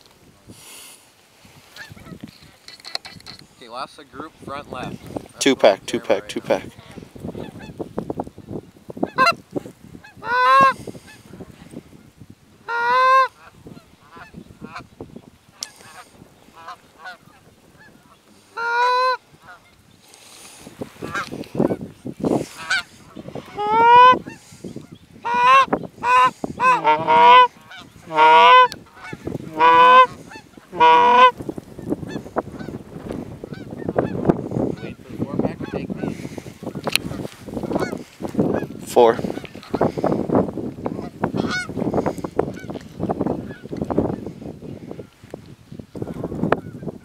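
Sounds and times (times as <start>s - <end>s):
geese honking and clucking: 1.6s - 3.9s, 4.7s - 7.9s, 9.0s - 12.0s, 12.6s - 45.3s, 46.0s - 47.0s.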